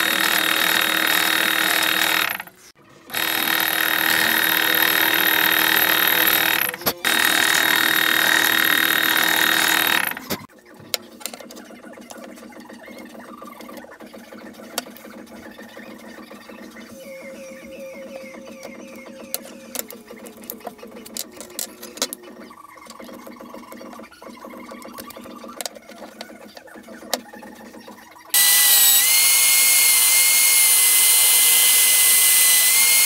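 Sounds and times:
drill press drilling steel: 0.0 - 10.4, 28.4 - 33.0.

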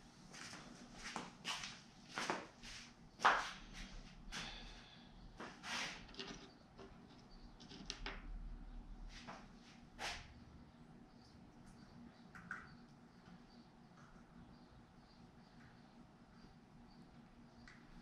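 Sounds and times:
small hardware clicks and rustles: 6.1 - 8.2.

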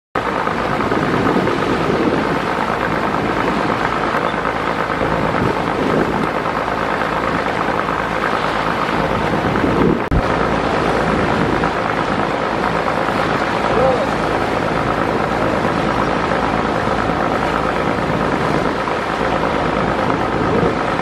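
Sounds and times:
rough water: 0.2 - 21.0
wind rushing: 5.0 - 21.0.

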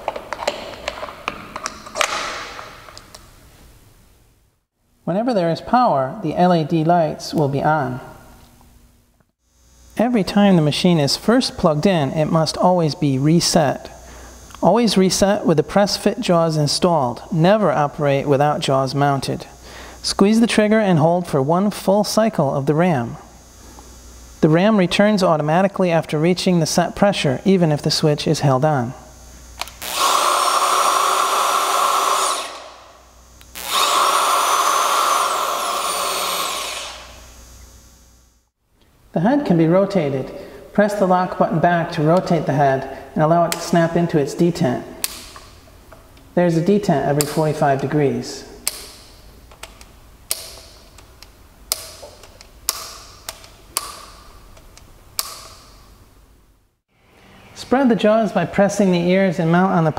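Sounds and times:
electric motor whining: 29.1 - 38.4.

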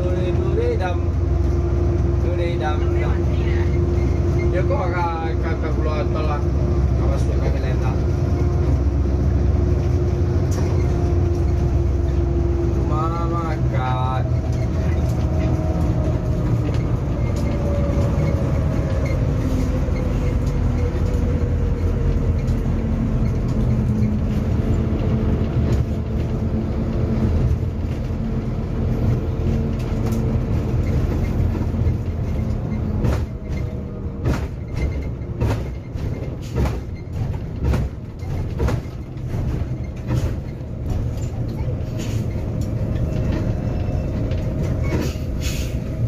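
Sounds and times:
bus engine and road drone: 0.0 - 46.0
sharp irregular thumps and knocks: 29.5 - 41.2.

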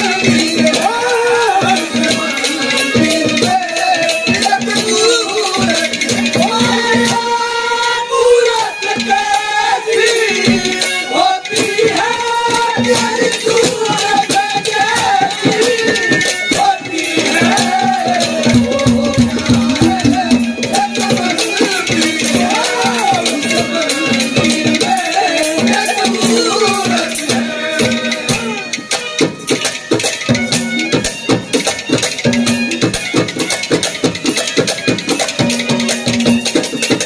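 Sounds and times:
rattling percussion: 0.0 - 37.0
brisk hand drumming: 12.8 - 23.7
wavering folk melody: 13.1 - 37.0
held low note: 18.1 - 20.8.

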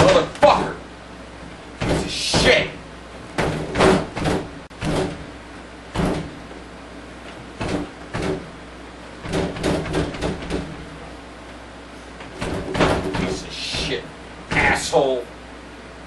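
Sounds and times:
hand banging on tv cabinet: 1.8 - 2.7, 3.4 - 5.2, 6.0 - 6.4, 7.6 - 8.5, 9.2 - 10.8, 12.2 - 14.8.

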